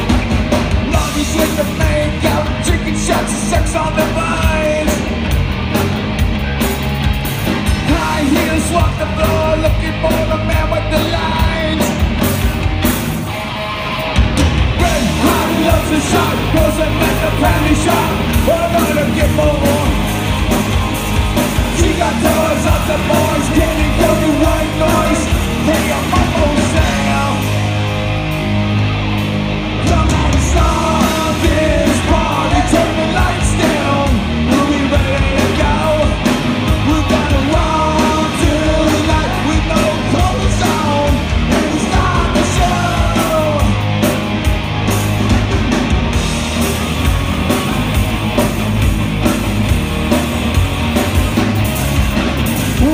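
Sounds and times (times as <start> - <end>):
drums hitting: 0.0 - 13.4, 14.1 - 28.5, 29.8 - 52.9
live rock band playing: 0.0 - 52.9
person singing: 14.8 - 20.0, 21.7 - 27.6, 29.8 - 43.8.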